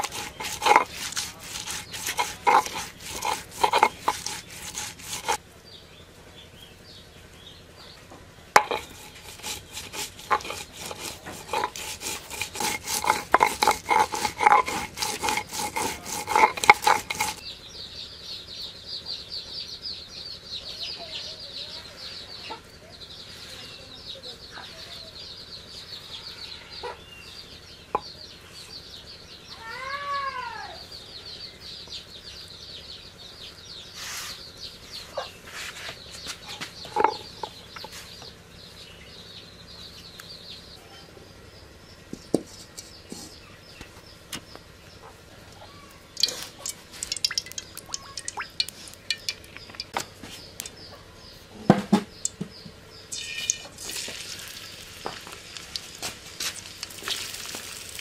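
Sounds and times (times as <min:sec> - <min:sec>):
stone roller grinding on stone slab: 0:00.0 - 0:05.4, 0:08.6 - 0:17.4, 0:36.7 - 0:37.9, 0:46.2 - 0:50.7, 0:53.1 - 0:58.0
high chirping: 0:42.9 - 0:51.5, 0:52.1 - 0:58.0.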